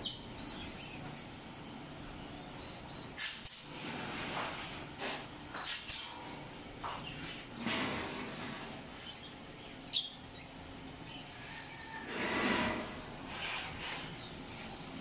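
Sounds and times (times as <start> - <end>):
pneumatic clip gun firing: 3.2 - 3.7, 5.6 - 6.1.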